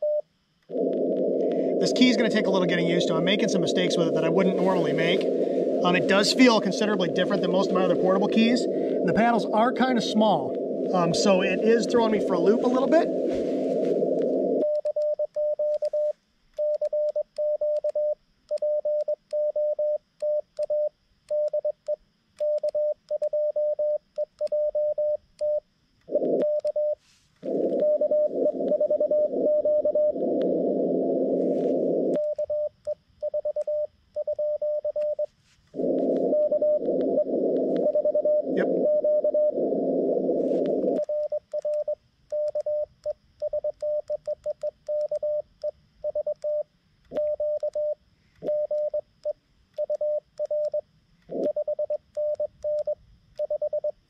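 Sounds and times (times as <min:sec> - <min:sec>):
morse code tone: 0:00.0 - 0:17.8, 0:26.2 - 0:42.9
radio band hiss: 0:00.7 - 0:14.6, 0:27.0 - 0:32.2, 0:35.7 - 0:41.1.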